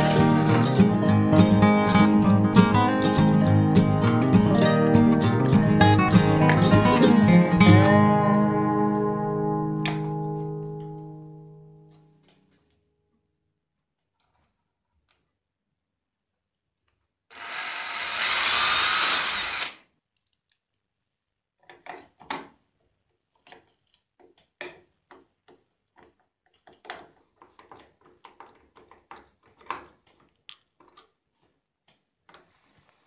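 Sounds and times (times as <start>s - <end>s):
cordless drill boring: 0.0s - 1.0s, 17.3s - 19.8s
screwdriver creaking and scraping: 0.0s - 1.0s, 17.3s - 19.8s.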